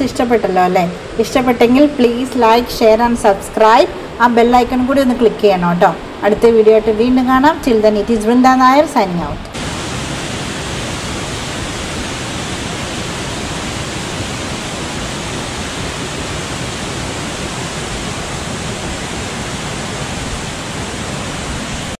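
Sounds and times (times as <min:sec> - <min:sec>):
waterfall rushing: 0:09.5 - 0:22.0.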